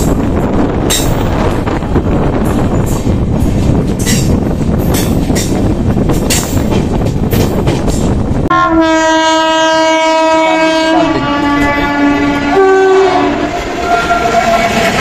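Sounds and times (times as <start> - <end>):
rail and wind noise: 0.0 - 15.0
train horn: 8.5 - 15.0.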